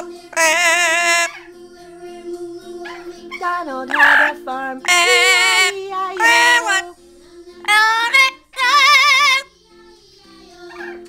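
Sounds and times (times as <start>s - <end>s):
parrot singing high notes: 0.0s - 1.5s, 2.8s - 6.9s, 7.6s - 9.5s.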